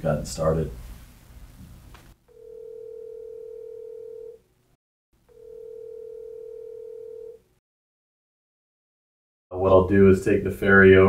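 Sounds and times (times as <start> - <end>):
telephone ringback tone: 2.3 - 4.4, 5.3 - 7.4.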